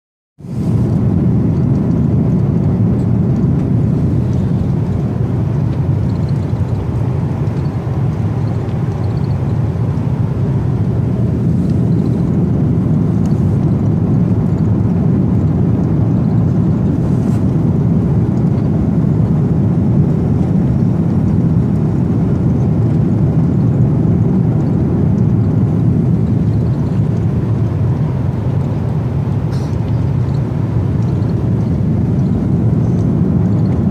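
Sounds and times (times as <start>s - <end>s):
jet engines droning: 0.4s - 33.9s.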